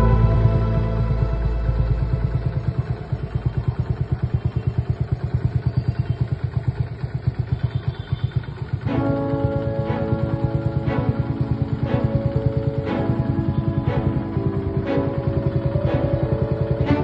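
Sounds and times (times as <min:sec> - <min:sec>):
background music: 0:00.0 - 0:03.8, 0:08.8 - 0:17.0
motorcycle engine idling: 0:00.0 - 0:17.0.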